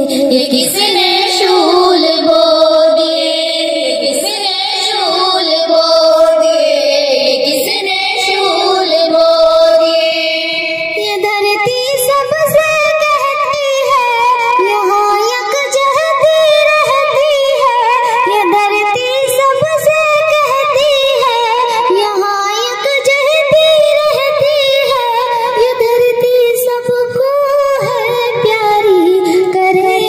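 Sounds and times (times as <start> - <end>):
girls singing through pa system: 0.0 - 30.0.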